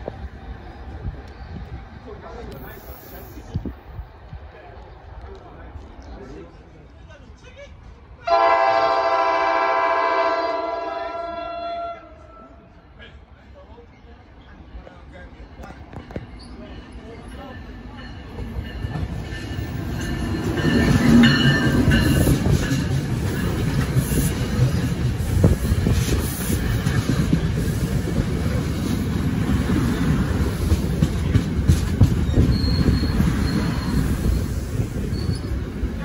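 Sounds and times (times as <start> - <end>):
train passing: 0.0 - 36.0
wheel squeal on rails: 32.0 - 35.8.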